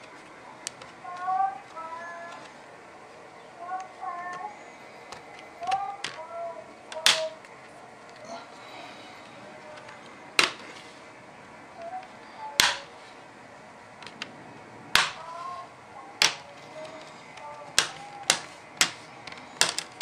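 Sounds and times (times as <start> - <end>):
plastic clips snapping: 6.9 - 7.5, 9.7 - 10.8, 12.6 - 12.9, 14.0 - 14.3, 14.9 - 15.3, 16.2 - 20.0.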